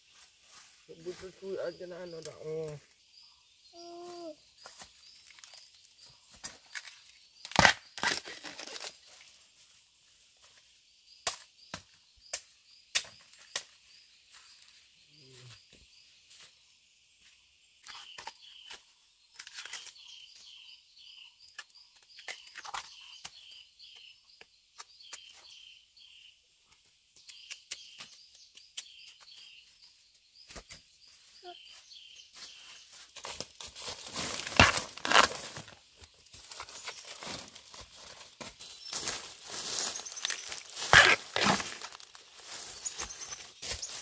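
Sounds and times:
plant material snapping: 34.4s - 35.4s, 40.2s - 42.0s.

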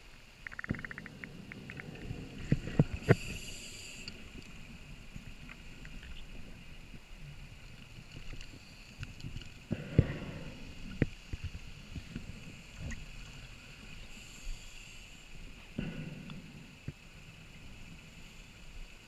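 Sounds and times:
small clicks: 0.4s - 4.6s
muffled underwater rumble: 0.5s - 19.0s.

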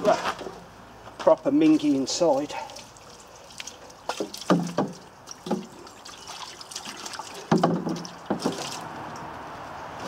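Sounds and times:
water splashing on metal box: 2.8s - 8.9s.

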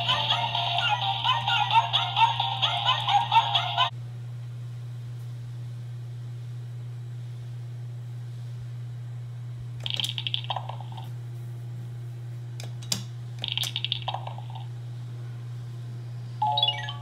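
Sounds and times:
toy electronic chirps and beeps: 16.4s - 17.0s.

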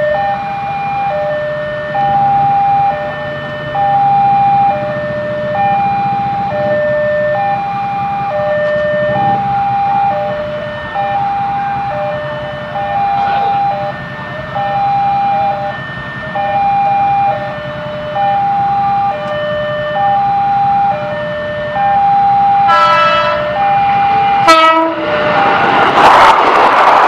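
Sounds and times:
level crossing alarm ding-dong: 0.0s - 24.5s
train noise: 0.0s - 27.0s
train horn: 8.6s - 21.2s, 22.0s - 25.2s.

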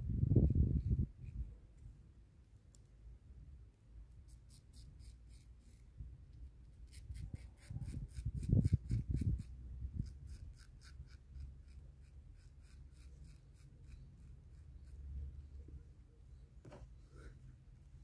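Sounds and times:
razor scraping beard stubble: 4.3s - 5.8s, 6.8s - 15.1s.

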